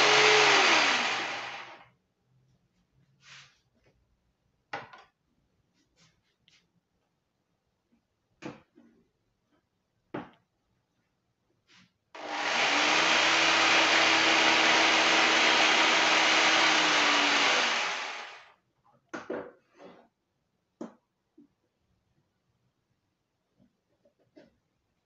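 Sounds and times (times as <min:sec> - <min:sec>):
electric saw cutting marrow: 0:00.0 - 0:01.8, 0:12.2 - 0:18.5.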